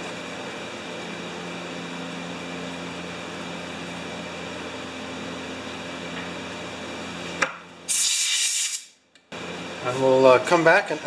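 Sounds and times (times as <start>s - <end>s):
steady machine hum: 0.0s - 7.9s, 8.9s - 11.0s.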